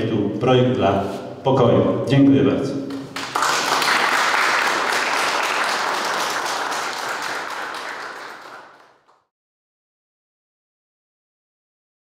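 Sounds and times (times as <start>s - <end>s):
audience applauding: 3.0s - 9.3s.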